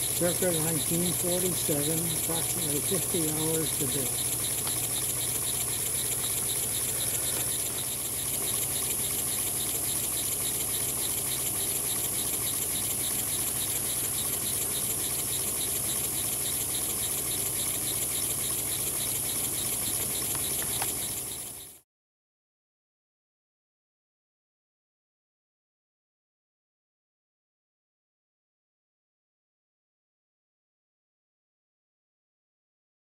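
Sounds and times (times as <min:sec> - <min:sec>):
model steam engine exhaust beat: 0:00.0 - 0:21.8.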